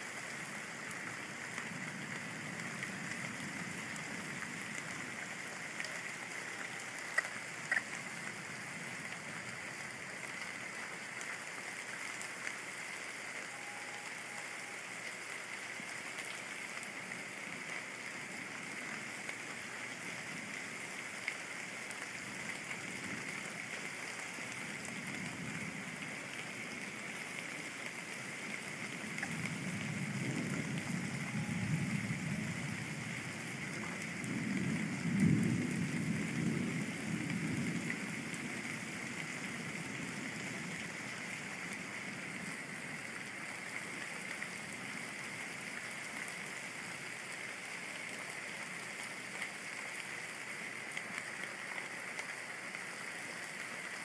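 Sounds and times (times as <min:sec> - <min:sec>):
steady rain hiss: 0:00.0 - 0:54.0
sharp drip ticks: 0:06.6 - 0:08.4
low rumble of thunder: 0:24.4 - 0:26.3, 0:28.8 - 0:43.0.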